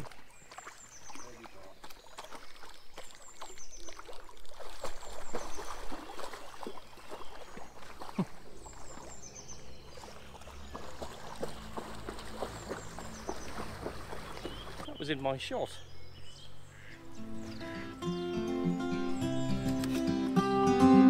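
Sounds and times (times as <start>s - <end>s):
dog splashing through water: 0.0s - 15.0s.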